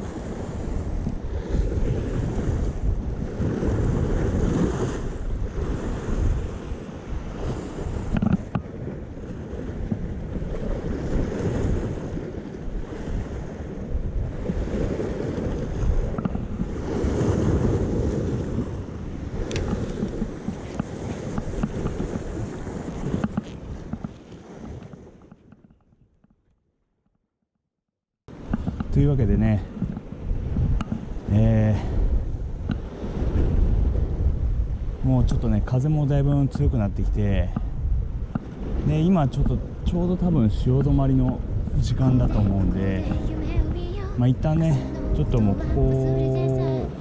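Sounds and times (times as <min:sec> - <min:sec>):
wind on microphone: 0:00.0 - 0:25.5, 0:28.3 - 0:47.0
surf washing against rocks: 0:41.7 - 0:47.0.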